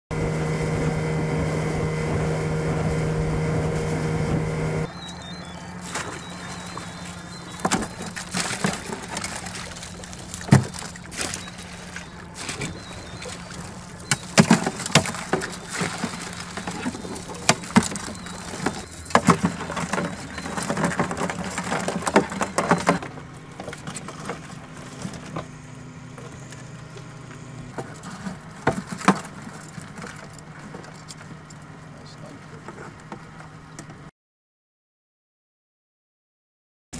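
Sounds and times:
boat motor humming: 0.1s - 34.1s
crabs clattering against plastic box: 5.9s - 11.6s, 12.4s - 25.6s, 27.7s - 31.8s.

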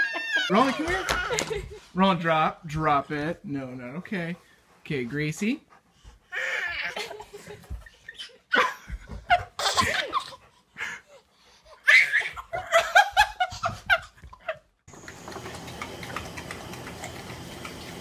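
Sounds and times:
baby laughing: 0.0s - 1.8s, 11.7s - 14.6s
woman laughing: 6.7s - 10.4s, 12.2s - 14.7s.

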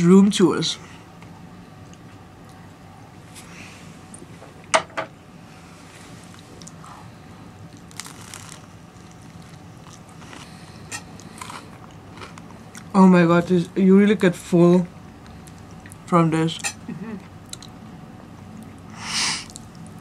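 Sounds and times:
crunchy bites into toast: 7.7s - 12.9s.

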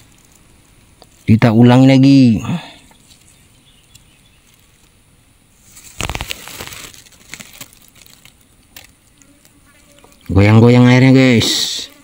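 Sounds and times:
fishing line handling rustle: 0.0s - 1.3s, 2.8s - 10.4s.

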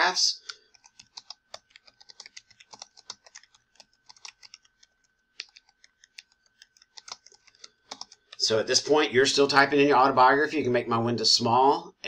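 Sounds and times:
typing on keyboard: 0.4s - 8.5s.

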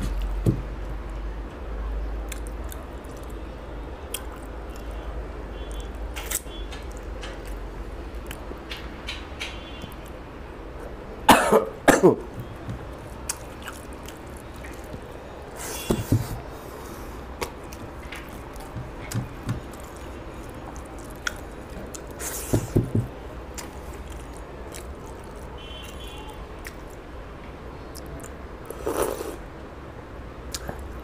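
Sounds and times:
chewing and wet mouth sounds: 2.2s - 8.8s, 12.4s - 22.8s, 23.4s - 27.1s, 27.9s - 29.4s, 30.5s - 31.0s.

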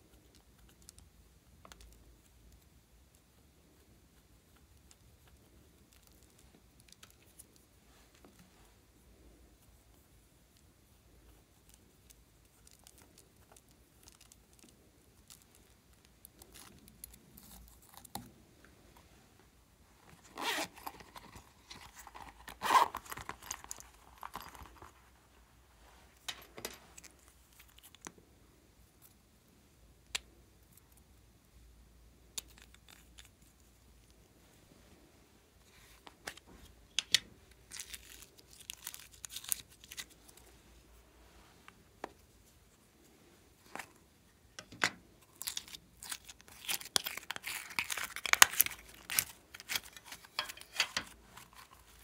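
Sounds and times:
plastic packaging rustling: 37.6s - 40.6s, 44.6s - 52.0s.

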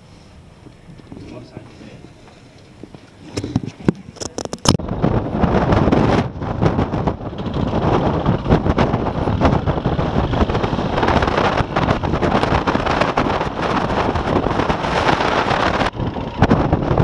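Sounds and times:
wind buffeting microphone: 0.6s - 17.0s
dirt bike engine running: 4.8s - 17.0s.

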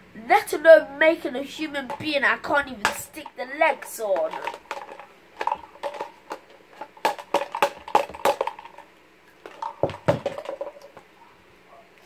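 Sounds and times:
hollow plastic doll parts knocking: 1.8s - 11.1s.

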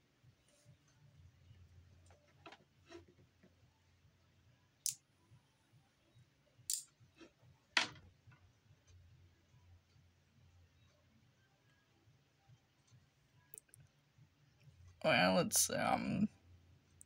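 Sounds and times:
faint low hum: 0.0s - 17.0s.

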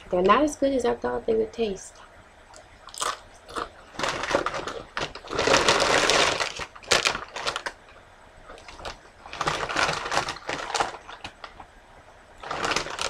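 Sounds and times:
chips crunching while chewed: 2.8s - 7.8s, 8.5s - 11.6s, 12.4s - 13.0s.

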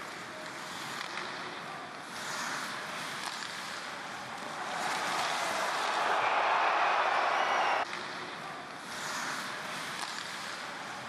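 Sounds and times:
sticks and skates clicking on ice: 2.2s - 6.4s, 8.9s - 10.8s
arena crowd noise: 4.1s - 8.7s.

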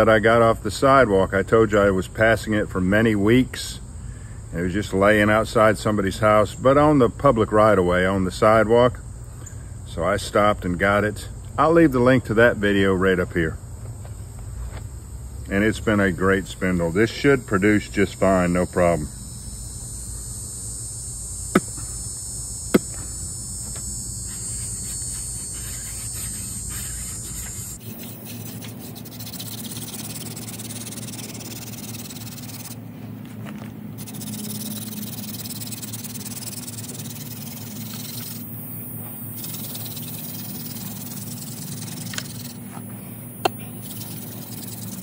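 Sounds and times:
high insect drone: 0.0s - 45.0s
wooden spindle rubbing hiss: 21.5s - 32.8s, 34.0s - 45.0s.

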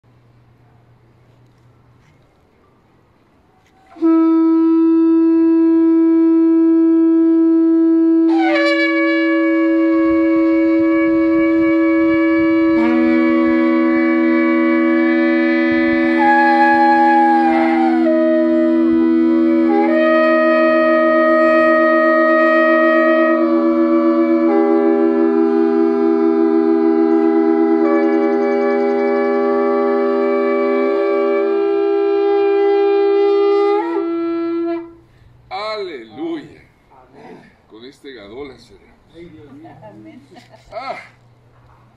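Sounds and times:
shofars blowing sustained blast: 3.9s - 35.4s.

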